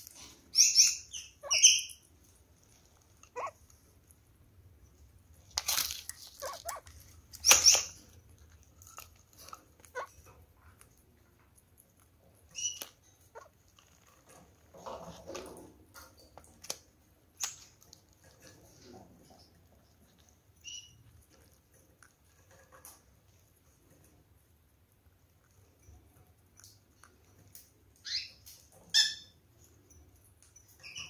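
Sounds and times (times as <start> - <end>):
parrots pecking in a plastic dish: 0.0 - 31.0.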